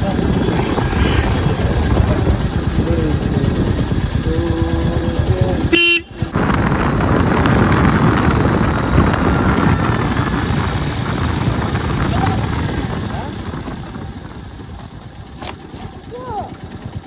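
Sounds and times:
wind buffeting: 0.0 - 15.4
motorbike road noise: 0.0 - 17.0
vehicle horn: 5.7 - 6.3.

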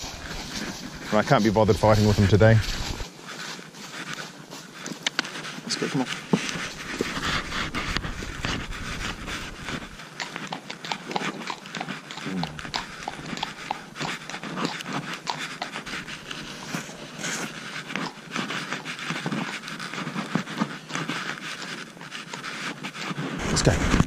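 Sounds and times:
steady breathy hiss: 0.0 - 10.1, 12.2 - 17.8
horse hooves clopping on road: 0.0 - 24.0
horse grunt: 12.1 - 14.4.

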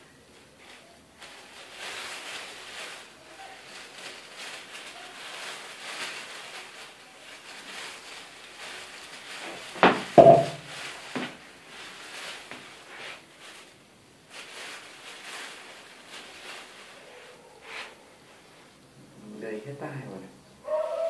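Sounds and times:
sharp knocks: 9.8 - 10.6.

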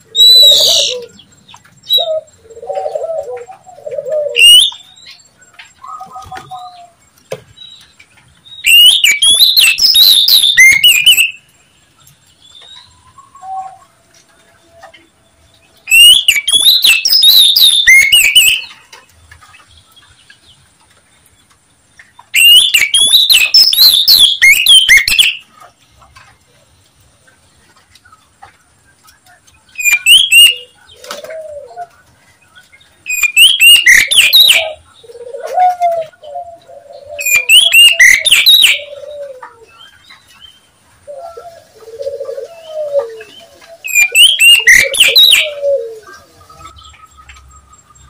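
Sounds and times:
bird scratchy chattering: 41.9 - 46.8.

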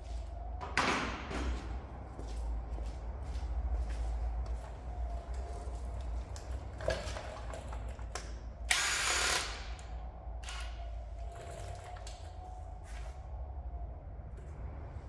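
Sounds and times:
cordless drill burst: 8.7 - 9.6.

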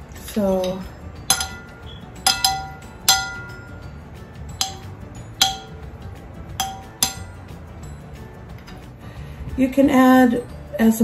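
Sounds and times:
metal spoon clinking on glass: 0.6 - 6.0, 6.6 - 7.6.

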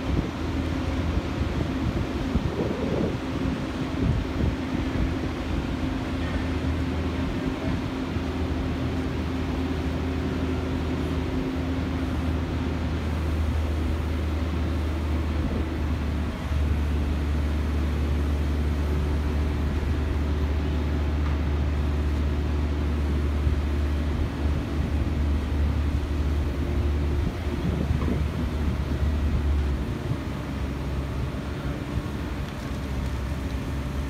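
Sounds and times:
crane engine droning: 0.0 - 34.0.

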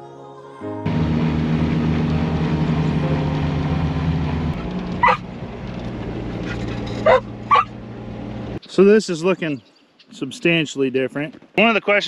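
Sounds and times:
vehicle engine running: 0.9 - 8.6
dog yipping: 5.0 - 5.2, 6.4 - 7.7.

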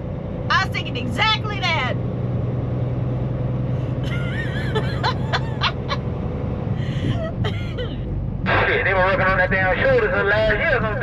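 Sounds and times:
road noise: 0.0 - 11.0
truck engine drone: 0.0 - 11.0
woman laughing: 4.0 - 6.1, 6.8 - 8.0.

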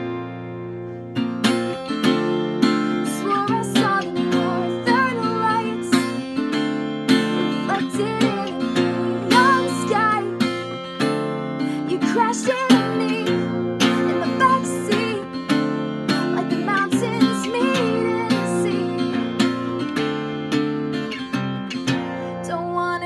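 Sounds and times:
acoustic guitar strumming: 0.0 - 23.0
person singing: 3.0 - 10.8, 11.6 - 19.9.

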